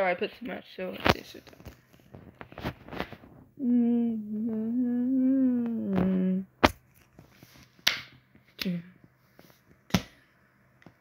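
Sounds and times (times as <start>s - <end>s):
person humming: 3.6s - 6.6s.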